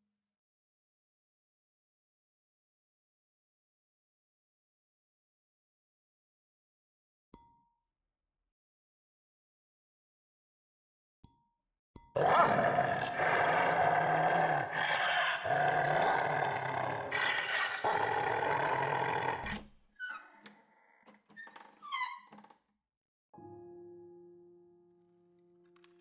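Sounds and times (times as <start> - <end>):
harsh dog-like growling: 12.2 - 19.6.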